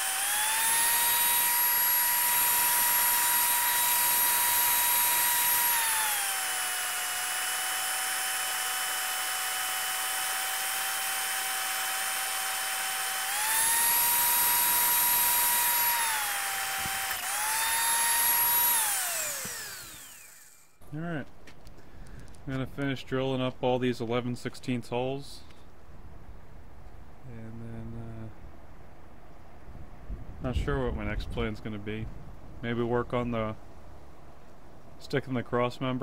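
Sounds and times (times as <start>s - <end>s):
drill motor whine: 0.0s - 20.8s.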